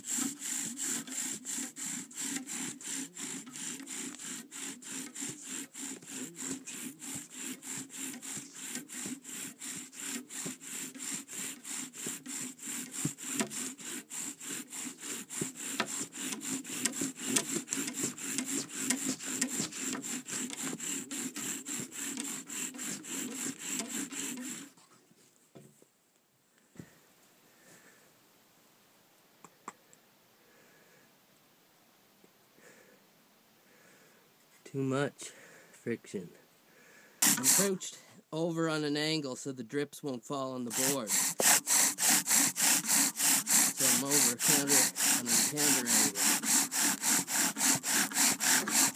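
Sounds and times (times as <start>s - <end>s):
bow drill rhythmic rasp: 0.0s - 25.0s, 37.2s - 39.0s, 40.3s - 48.9s.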